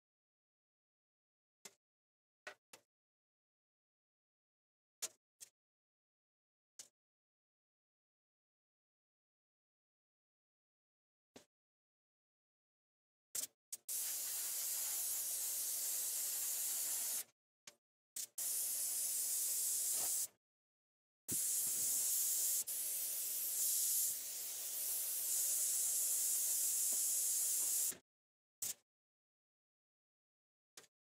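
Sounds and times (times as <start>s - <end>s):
airbrush spraying paint: 13.8s - 17.3s, 18.2s - 20.3s, 21.3s - 28.0s.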